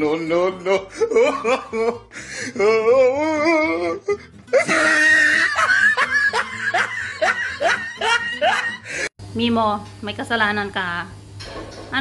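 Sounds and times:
music: 0:00.0 - 0:09.1
person laughing: 0:00.3 - 0:09.1.

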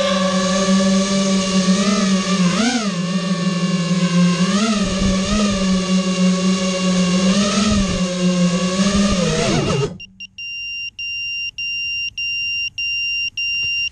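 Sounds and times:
quadcopter motors whining: 0:00.0 - 0:10.2.

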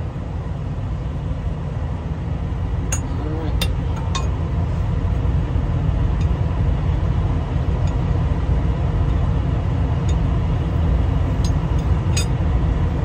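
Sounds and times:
low mechanical rumble: 0:00.0 - 0:13.0.

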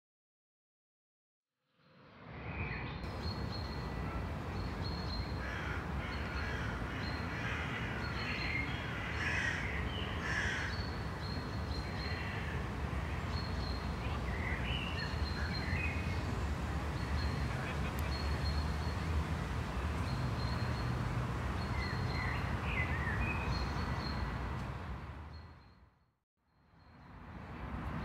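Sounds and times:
crows cawing: 0:05.4 - 0:08.2, 0:08.8 - 0:10.8.

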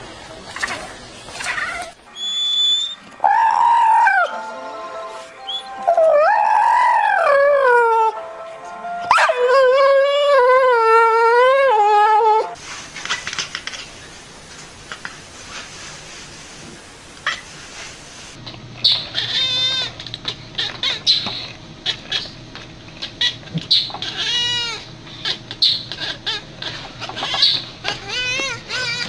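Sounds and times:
puppy howling: 0:01.4 - 0:04.4, 0:05.5 - 0:08.2, 0:09.1 - 0:12.6, 0:19.1 - 0:20.0, 0:23.2 - 0:29.0.

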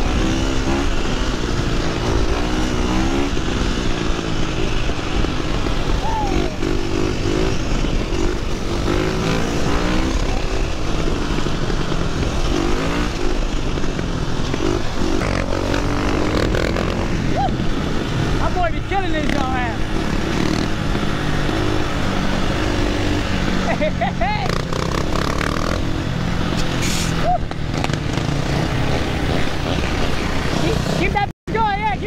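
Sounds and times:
wind rumble on microphone: 0:00.0 - 0:23.6
dirt bike engine revving: 0:00.0 - 0:32.0.

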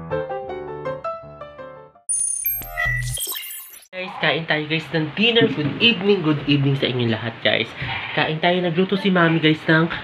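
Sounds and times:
bell-like chime: 0:02.1 - 0:03.4.

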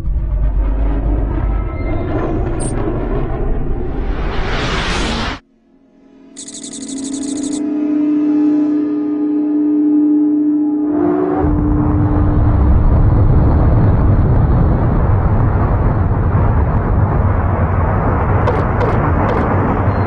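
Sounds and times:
deep rumble: 0:11.4 - 0:20.0.

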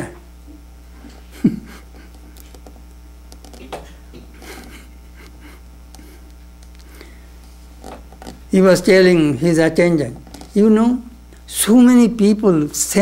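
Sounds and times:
steady low hum: 0:00.0 - 0:13.0
faint clicks and rustles: 0:02.1 - 0:08.5.

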